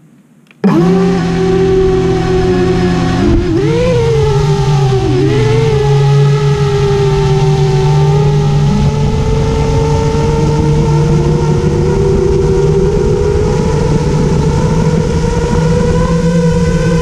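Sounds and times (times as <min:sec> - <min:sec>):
quadcopter motors whining: 0:00.6 - 0:17.0.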